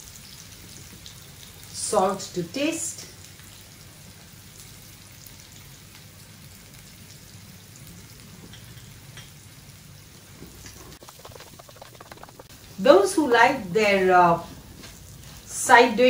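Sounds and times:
food sizzling in a pan: 0.0 - 16.0.

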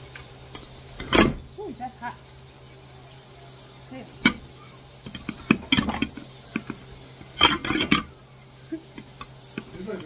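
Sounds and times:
dishes and utensils clattering: 5.0 - 8.2.

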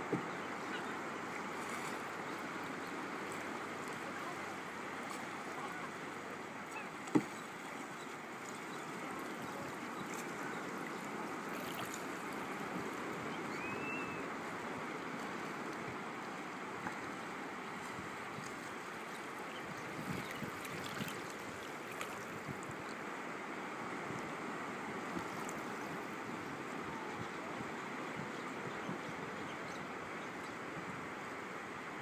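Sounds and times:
shallow water lapping: 0.2 - 15.9, 17.6 - 23.0.

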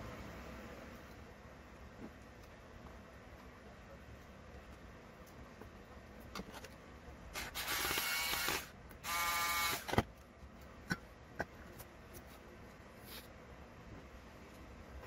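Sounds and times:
electric screwdriver motor whine: 7.4 - 10.0.

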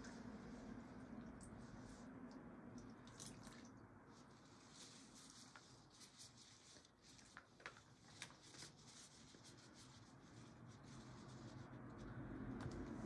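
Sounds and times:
rustling moss with soft crackles: 4.1 - 11.7.

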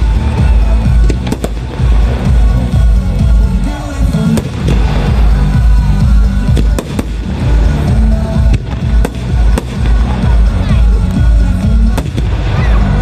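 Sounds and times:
music from loudspeakers: 0.0 - 13.0.

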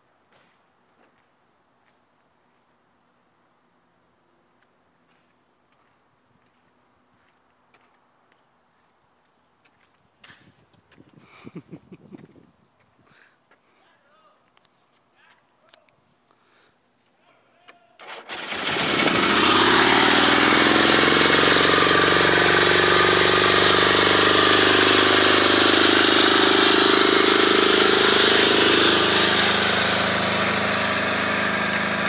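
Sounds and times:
buggy engine starting and idling: 18.0 - 32.0.

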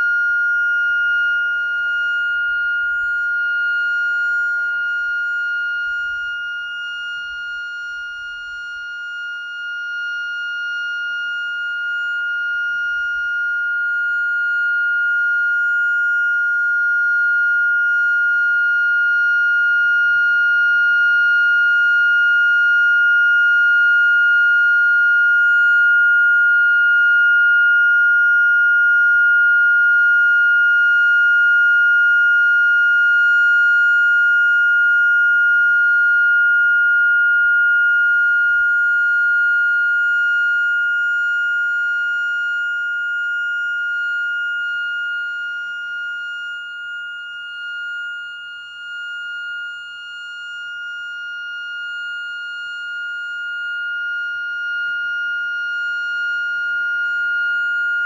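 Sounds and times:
steady warning siren: 0.0 - 58.0.

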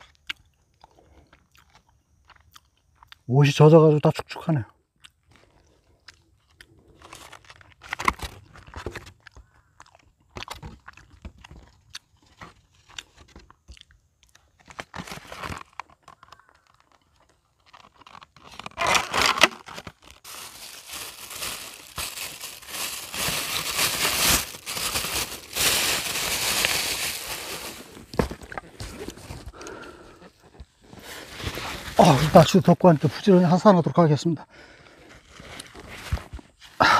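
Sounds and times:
paper wrapper crumpling: 6.9 - 9.5, 14.4 - 29.5, 31.0 - 32.7.

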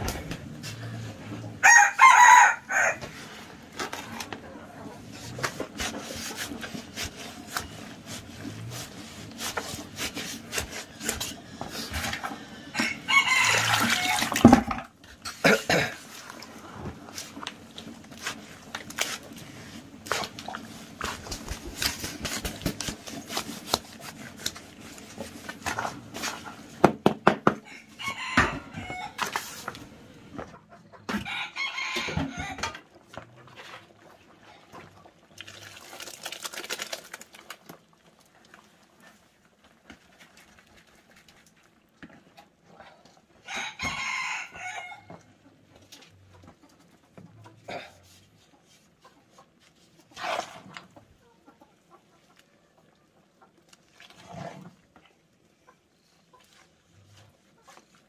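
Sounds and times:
rooster crowing: 1.6 - 3.1, 12.7 - 14.4, 27.6 - 29.2, 31.1 - 32.6, 43.5 - 45.2
stick stirring mash in plastic bucket: 3.0 - 27.2, 32.4 - 43.8, 48.0 - 51.2, 53.6 - 55.3.

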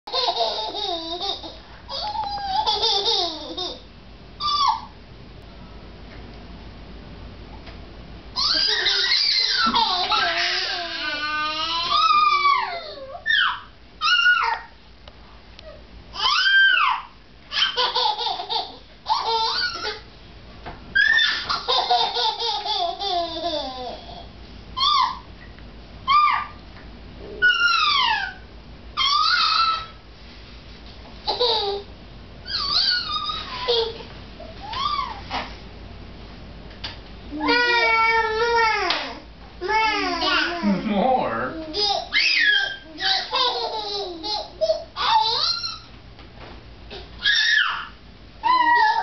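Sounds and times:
toddler giggling: 0.1 - 3.8, 8.4 - 13.2, 21.2 - 24.3, 32.5 - 35.2, 39.8 - 45.7
toddler squealing: 4.4 - 4.9, 8.4 - 14.7, 16.2 - 17.8, 19.4 - 20.0, 21.0 - 21.6, 24.8 - 25.3, 26.1 - 26.6, 27.4 - 28.4, 29.0 - 30.0, 32.4 - 34.0, 34.6 - 35.2, 37.4 - 38.7, 41.8 - 43.4, 45.0 - 45.9, 47.2 - 49.0.

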